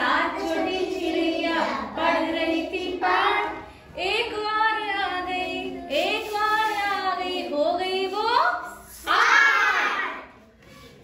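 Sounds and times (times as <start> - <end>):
children singing in unison: 0.0 - 3.7.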